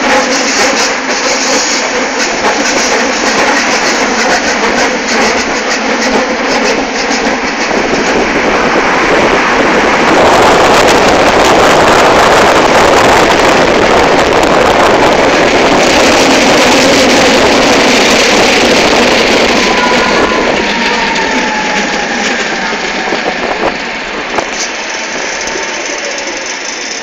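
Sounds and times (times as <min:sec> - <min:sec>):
tram wheels on rails: 0:00.0 - 0:27.0
wind on microphone: 0:02.4 - 0:24.6.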